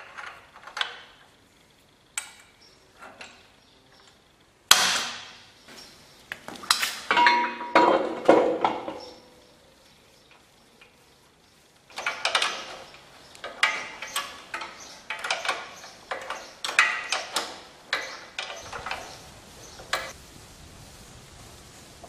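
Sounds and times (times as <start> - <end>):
steel parts clanking and rattling: 6.7 - 9.4, 11.9 - 20.2.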